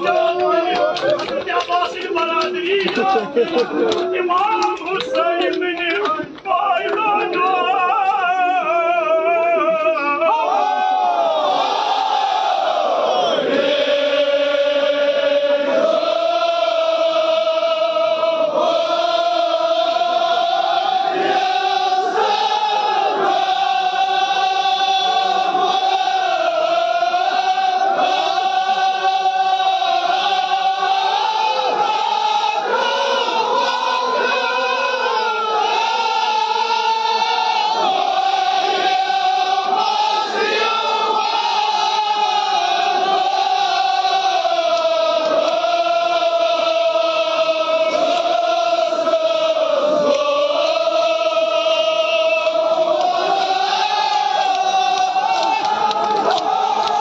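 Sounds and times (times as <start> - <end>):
men chanting in unison: 0.0 - 57.0.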